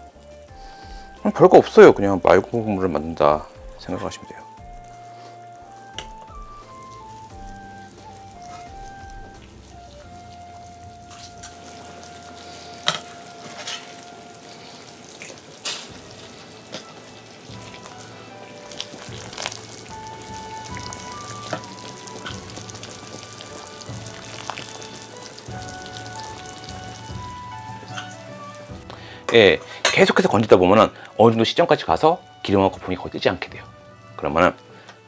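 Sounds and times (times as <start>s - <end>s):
broth boiling and bubbling: 3.4s - 29.3s.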